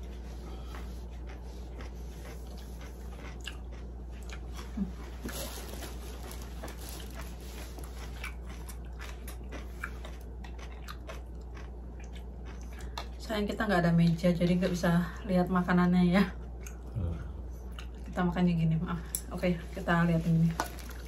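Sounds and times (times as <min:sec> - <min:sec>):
chewing with crunches: 0:00.0 - 0:14.8, 0:16.3 - 0:18.3, 0:20.1 - 0:21.0
low steady hum: 0:00.0 - 0:21.0.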